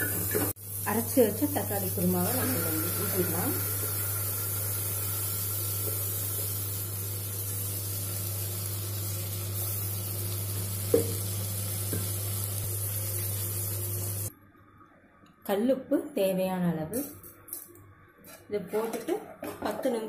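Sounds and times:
food sizzling in hot oil: 0.0s - 14.3s.

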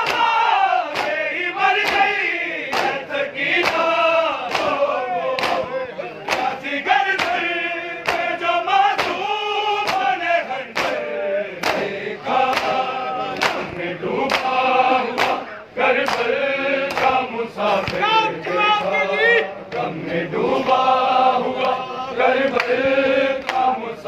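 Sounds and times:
men chanting in chorus: 0.0s - 24.0s
hand strikes on bare chests: 0.9s - 1.2s, 5.4s - 6.6s, 9.0s - 10.2s.

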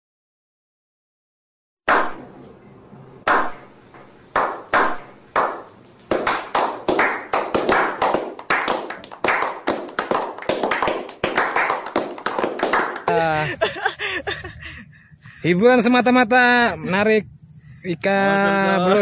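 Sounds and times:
group of people clapping: 4.4s - 13.7s.

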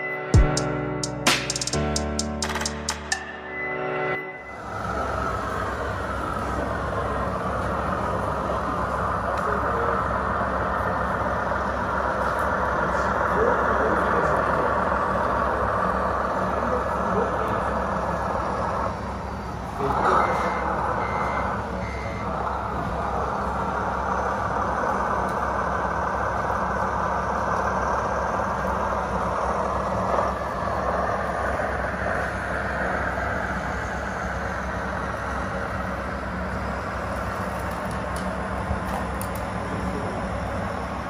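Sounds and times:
short reversing beeps: 2.9s - 5.1s, 19.9s - 22.4s.

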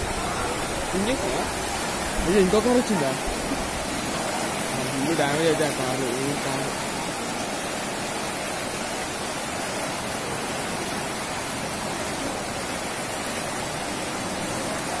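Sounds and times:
floodwater rushing: 0.0s - 15.0s.

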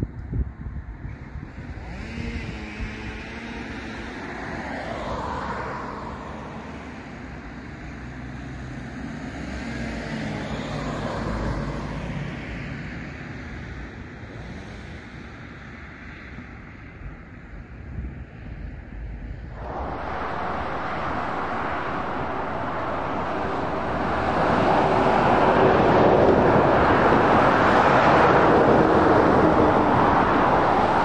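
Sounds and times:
road traffic noise: 0.3s - 31.0s
vehicles passing: 1.4s - 31.0s.

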